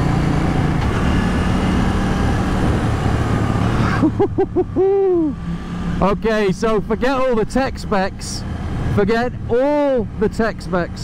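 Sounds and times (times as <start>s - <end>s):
motorcycle engine cruising: 0.0s - 11.0s
wind rushing over microphone: 1.2s - 3.8s.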